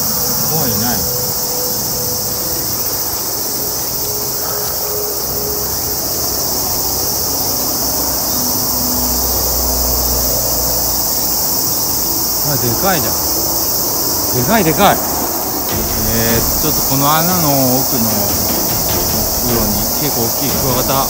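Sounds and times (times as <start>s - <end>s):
insects droning: 0.0s - 21.0s
low rumble: 15.7s - 21.0s.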